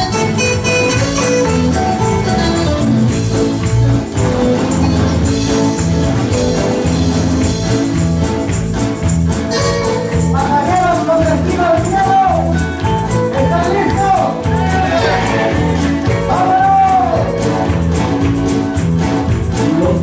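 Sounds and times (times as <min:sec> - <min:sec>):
worship band playing: 0:00.0 - 0:20.0
man singing: 0:10.3 - 0:12.6, 0:13.3 - 0:17.4, 0:19.6 - 0:20.0.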